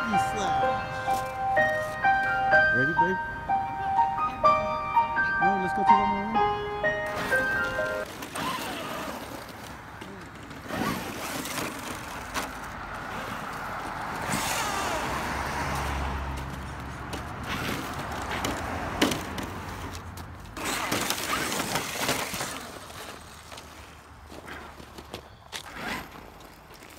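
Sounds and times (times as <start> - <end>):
tyres crunching snow: 5.5 - 26.9
electric motors whining: 7.1 - 9.8.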